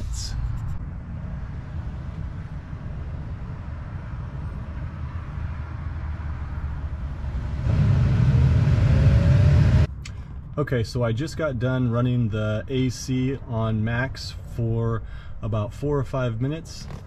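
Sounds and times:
cabin blower fan running: 7.0s - 9.9s
motor whine: 7.0s - 9.9s.

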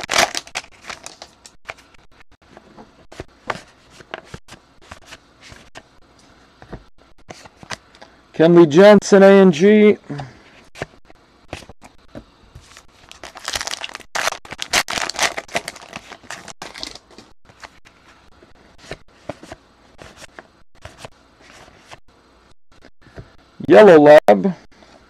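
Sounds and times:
wrapper crinkling and tearing: 0.0s - 1.9s, 13.0s - 17.3s.

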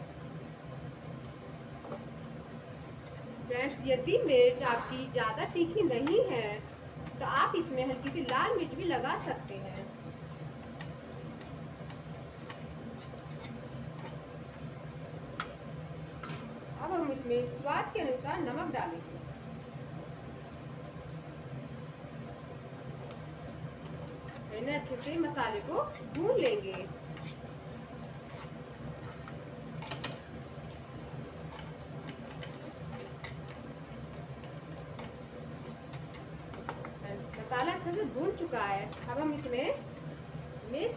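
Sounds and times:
low steady hum: 0.0s - 40.9s
spatula scraping metal pan: 25.8s - 30.2s, 31.3s - 38.2s.

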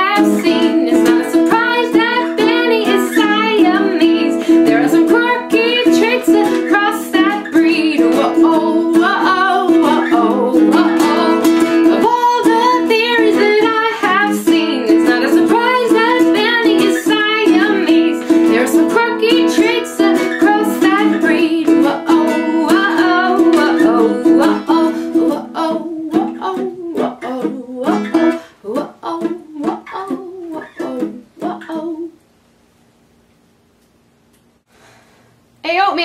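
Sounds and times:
strummed ukulele: 0.0s - 32.2s
woman singing: 0.0s - 32.2s.

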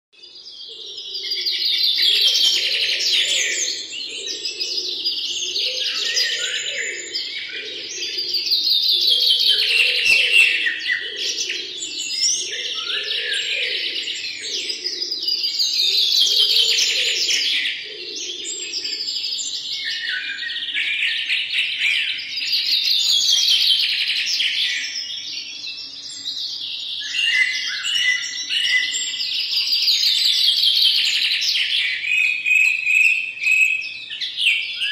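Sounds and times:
birds chirping and trilling: 0.2s - 34.9s
low bird warbling: 0.3s - 20.8s.

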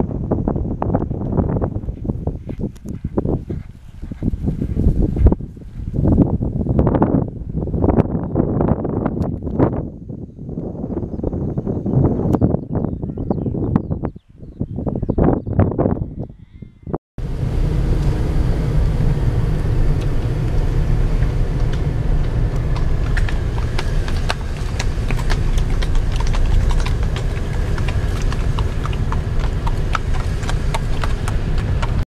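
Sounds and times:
horse hooves clip-clopping: 0.9s - 6.6s, 19.8s - 32.0s
car rumbling from inside: 16.0s - 32.0s.

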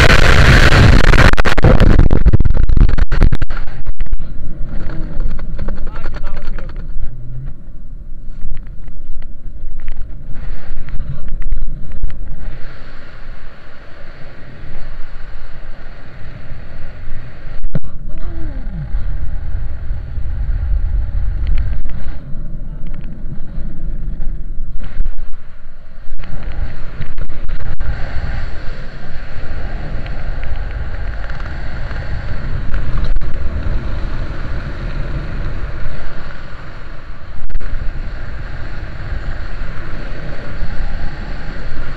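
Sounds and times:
wind buffeting microphone: 0.0s - 13.6s, 14.3s - 41.9s.

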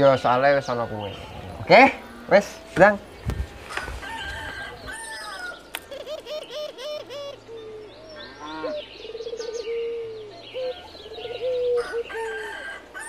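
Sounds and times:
chickens clucking: 0.0s - 7.5s
bird chirps: 0.0s - 12.4s
rooster crowing: 3.5s - 5.7s, 11.2s - 13.0s.

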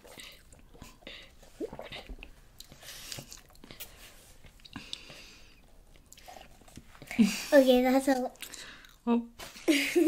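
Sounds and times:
chewing: 5.9s - 7.2s.

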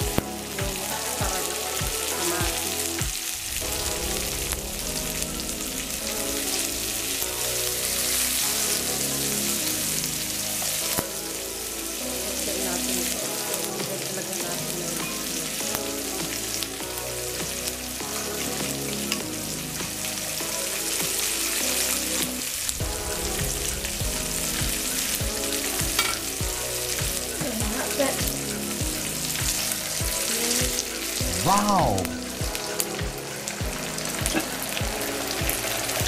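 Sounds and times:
vegetables sizzling in oil: 17.4s - 31.2s, 32.2s - 36.0s.

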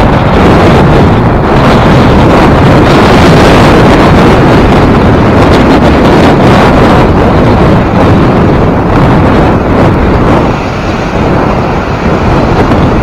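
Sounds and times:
wind buffeting microphone: 0.0s - 13.0s
waves washing on shore ice: 9.6s - 13.0s.

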